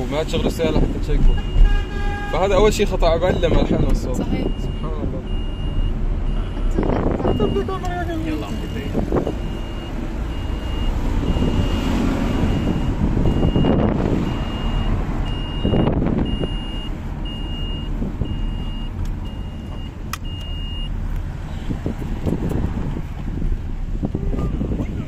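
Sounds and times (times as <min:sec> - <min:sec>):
car engine rumble: 0:00.0 - 0:25.0
car warning chime beeping: 0:02.4 - 0:21.0.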